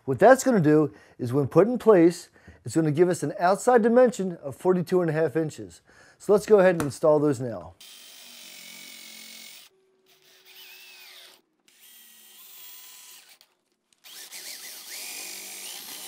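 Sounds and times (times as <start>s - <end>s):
electric drill whining: 7.8s - 16.0s.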